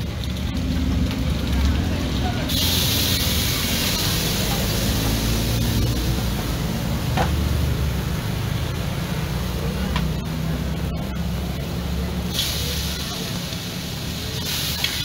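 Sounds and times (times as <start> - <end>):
wok sizzling over gas burner: 0.0 - 15.0.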